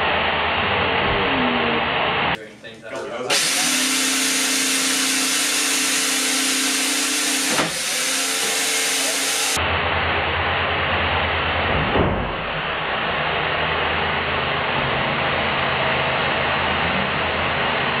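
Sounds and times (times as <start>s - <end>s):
motors whirring: 3.2s - 9.6s
brief thump: 11.7s - 12.6s.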